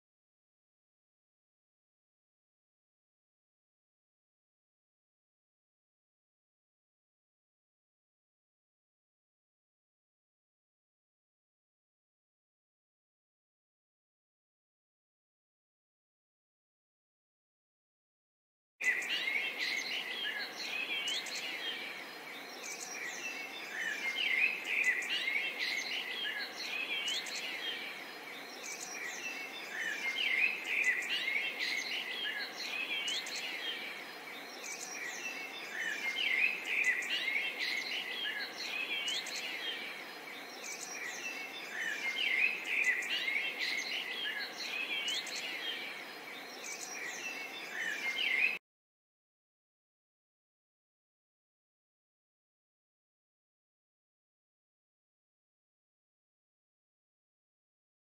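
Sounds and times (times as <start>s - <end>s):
faint background hiss: 18.8s - 48.6s
small birds chirping: 18.8s - 48.6s.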